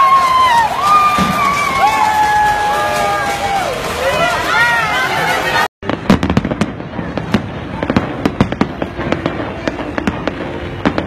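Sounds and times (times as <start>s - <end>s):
crowd shouting: 0.0s - 5.7s
fireworks bangs and crackles: 0.0s - 11.0s.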